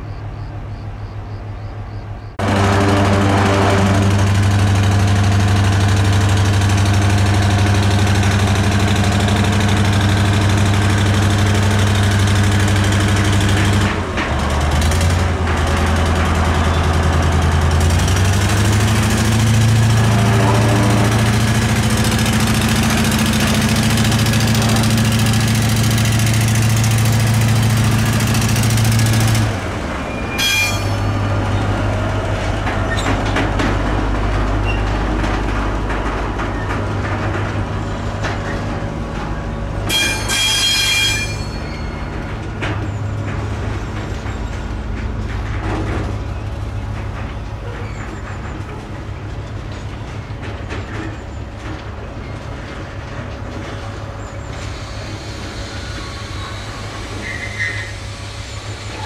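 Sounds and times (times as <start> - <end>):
diesel locomotive engine running: 0.0 - 59.0
brief high squeals: 54.8 - 58.1.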